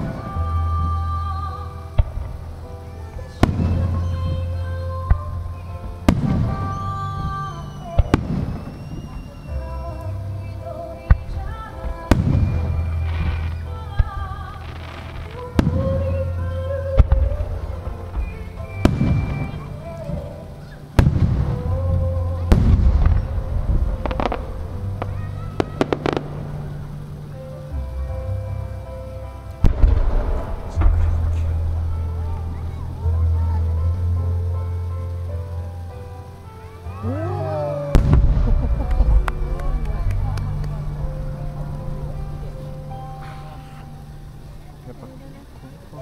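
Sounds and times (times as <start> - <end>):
music playing: 0.0 - 46.0
firework bangs: 2.0 - 34.1, 36.6 - 44.5
firework shells booming: 17.0 - 27.3, 29.6 - 32.5, 37.9 - 44.0.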